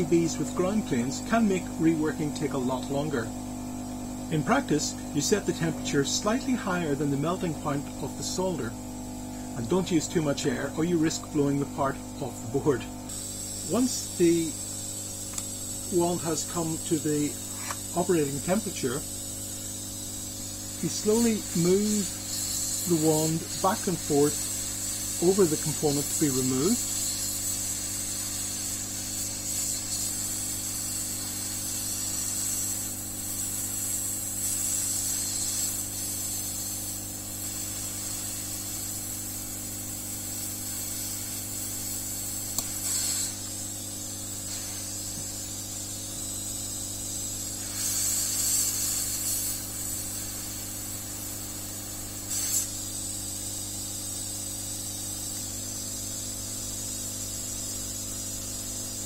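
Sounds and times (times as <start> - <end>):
hot air wand hissing: 0.0 - 59.0.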